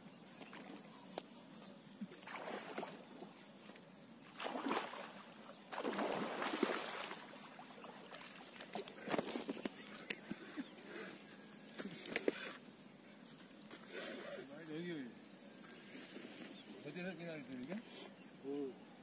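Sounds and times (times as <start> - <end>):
fish thrashing and splashing: 4.4 - 9.6.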